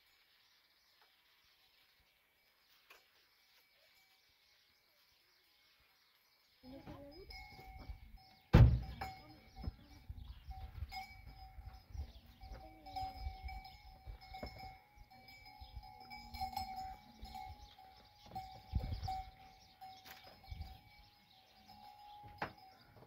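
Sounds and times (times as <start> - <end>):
loud sharp thump: 8.5 - 9.0.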